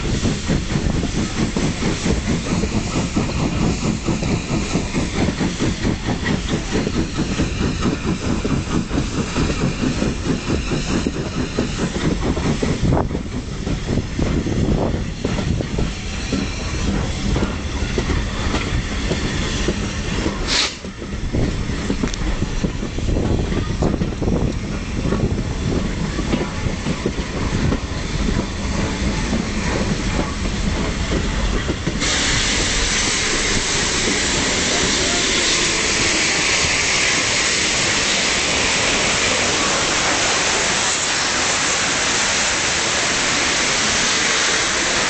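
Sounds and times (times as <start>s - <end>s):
loud steam hiss: 0.0s - 45.0s
railway carriage rumbling and clicking: 0.0s - 45.0s.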